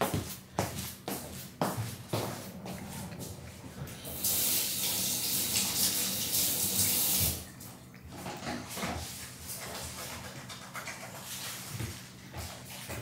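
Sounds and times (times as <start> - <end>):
water tap running: 3.9 - 7.6.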